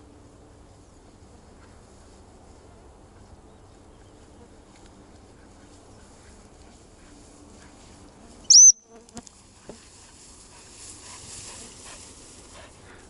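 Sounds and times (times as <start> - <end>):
faint insect buzz: 8.1 - 11.8.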